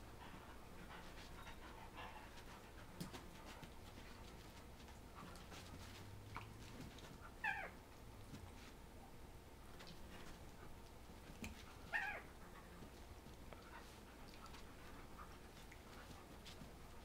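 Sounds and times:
dog yelping whine: 0:07.4 - 0:07.8, 0:11.8 - 0:12.3.

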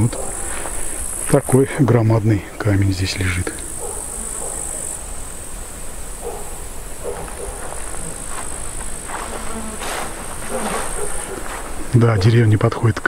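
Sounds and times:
insects chirring: 0:00.0 - 0:13.0
soft rustles: 0:07.1 - 0:12.0.

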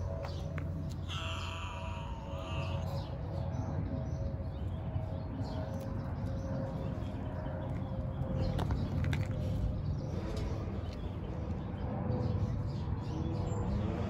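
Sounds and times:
cat meowing: 0:01.1 - 0:03.0.

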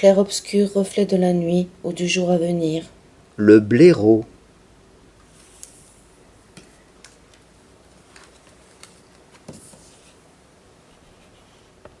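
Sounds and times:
book clicks and card rustles: 0:06.6 - 0:10.2.

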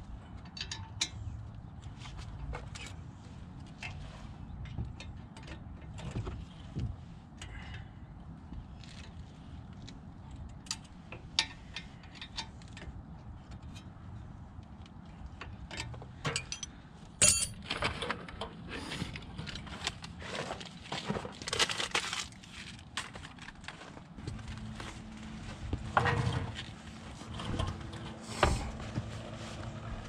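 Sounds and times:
metallic clicks and clinks: 0:16.3 - 0:17.6.

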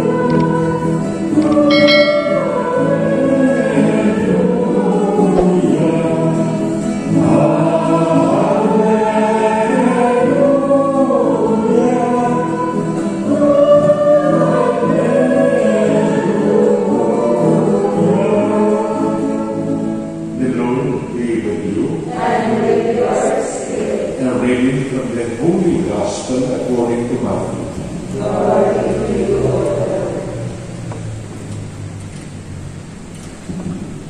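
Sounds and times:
choir singing a hymn: 0:00.0 - 0:31.2
low accompaniment: 0:01.4 - 0:06.2.

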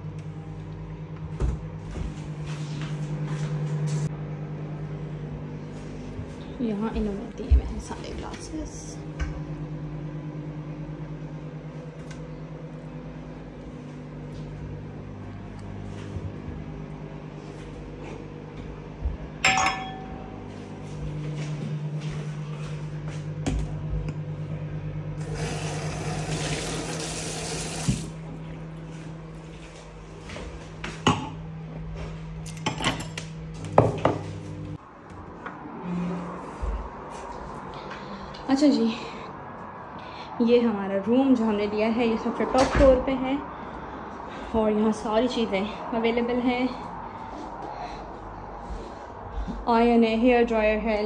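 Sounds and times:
microwave oven humming: 0:00.0 - 0:51.0
glass and crockery knocks: 0:19.4 - 0:20.1.

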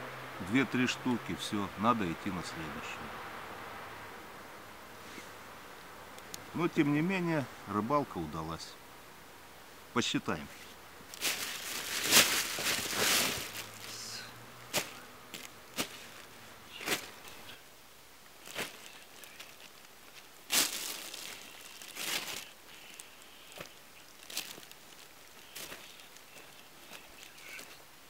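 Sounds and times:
plastic bag rustling: 0:10.6 - 0:17.6, 0:18.4 - 0:27.8.

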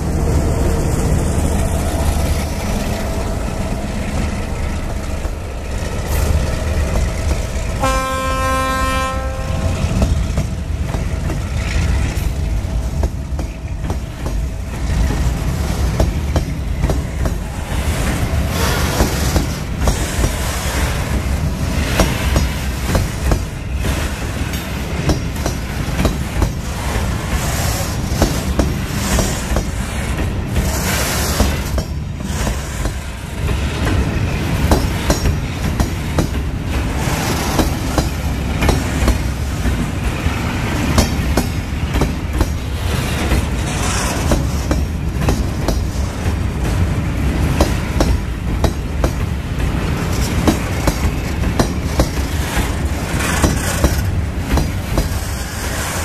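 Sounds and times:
diesel locomotive rumble: 0:00.0 - 0:56.0
train horn blast: 0:07.8 - 0:10.0
wheels clicking over rail joints: 0:09.9 - 0:56.0.

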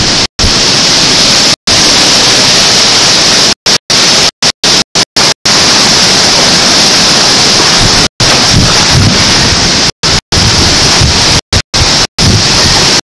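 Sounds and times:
driving rain: 0:00.0 - 0:13.0
hurricane wind: 0:00.0 - 0:13.0.

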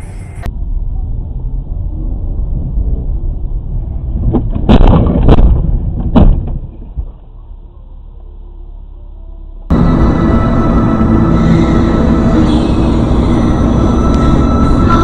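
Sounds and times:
car engine and road rumble: 0:00.0 - 0:15.0
car crash knocks and crunching: 0:04.2 - 0:06.9.

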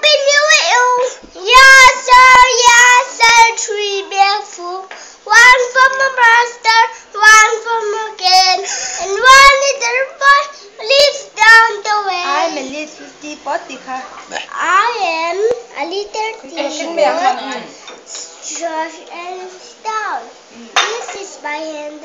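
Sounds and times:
boy singing unaccompanied: 0:00.0 - 0:12.6.

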